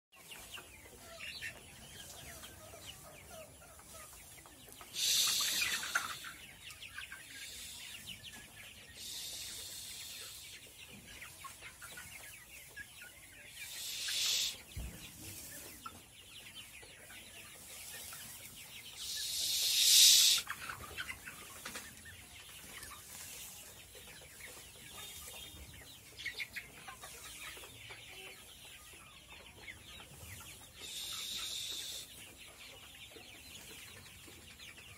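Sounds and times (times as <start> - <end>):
chickens clucking and peeping: 0.2 - 34.9
high hissing noise bursts: 4.9 - 6.4, 8.9 - 10.6, 13.6 - 14.7, 19.0 - 20.6, 30.8 - 32.1.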